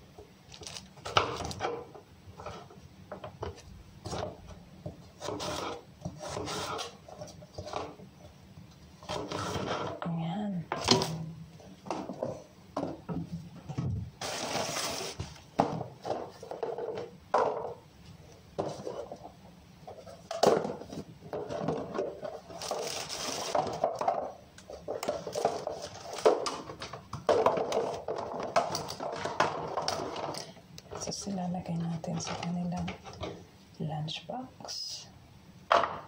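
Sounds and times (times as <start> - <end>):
plastic rustling: 0.5 - 2.7, 14.2 - 17.0, 19.9 - 30.6
plastic containers clattering: 10.7 - 17.8, 18.5 - 33.4, 35.7 - 36.0.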